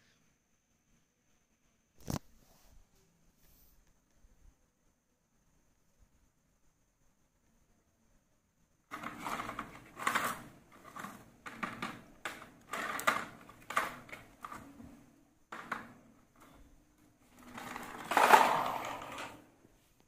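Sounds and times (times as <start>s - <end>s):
toy tractor wheels rattling: 8.9s - 14.7s, 17.2s - 19.4s.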